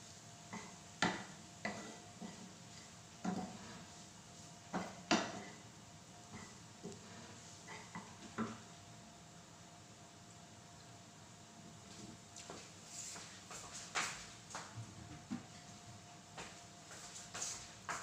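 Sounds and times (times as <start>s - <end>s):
wooden spatula scraping frying pan: 0.6s - 2.6s.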